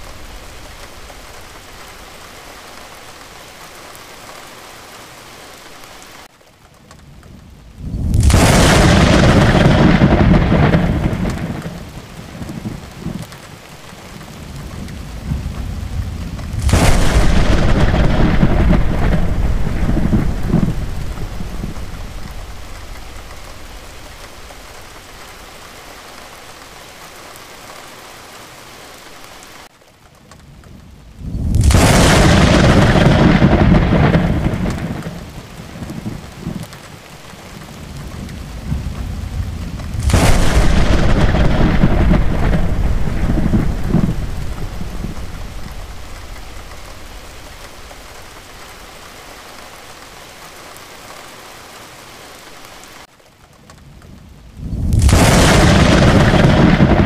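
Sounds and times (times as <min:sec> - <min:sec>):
steady rain: 0:00.0 - 0:57.0
rolling thunder claps: 0:07.8 - 0:13.3, 0:14.5 - 0:25.0, 0:31.2 - 0:36.7, 0:37.9 - 0:48.6, 0:54.6 - 0:57.0.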